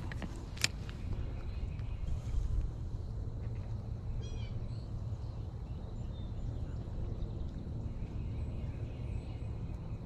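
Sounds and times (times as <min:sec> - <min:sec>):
steady low rumble: 0:00.0 - 0:10.0
bird calling: 0:04.1 - 0:04.9.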